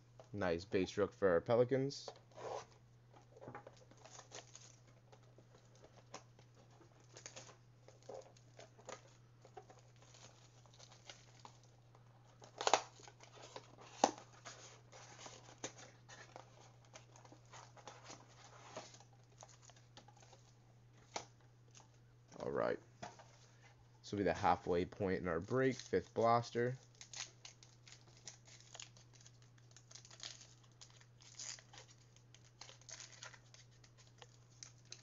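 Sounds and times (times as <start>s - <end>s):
plastic wrappers crinkling: 3.1s - 22.4s, 24.4s - 35.0s
wrappers ripping: 7.0s - 20.4s, 25.4s - 35.0s.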